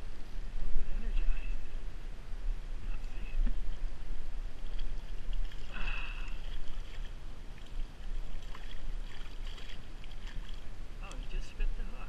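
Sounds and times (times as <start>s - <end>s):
stream water splashing: 2.9s - 12.0s.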